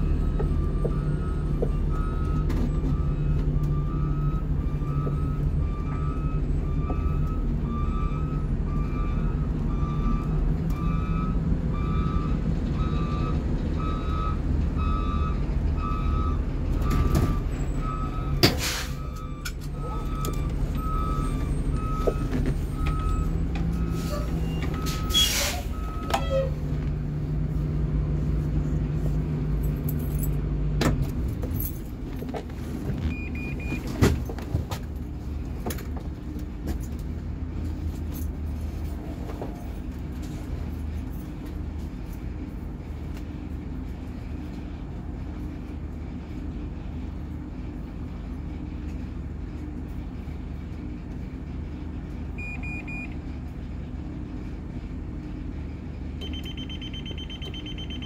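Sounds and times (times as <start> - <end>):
bus engine running: 0.0 - 58.0
backup alarm beeping: 33.1 - 33.9, 52.4 - 53.2, 56.2 - 58.0.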